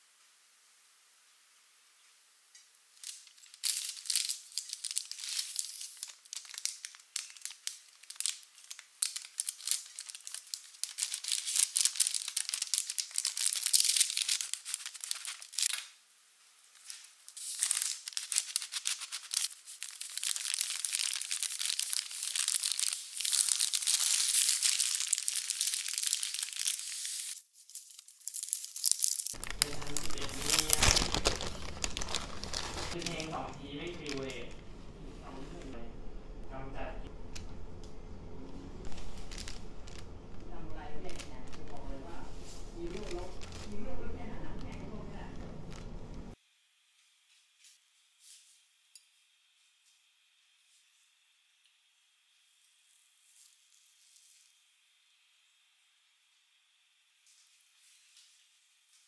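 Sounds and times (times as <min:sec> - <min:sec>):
baking paper crinkling: 0:02.8 - 0:16.0, 0:16.6 - 0:34.7, 0:38.7 - 0:46.4.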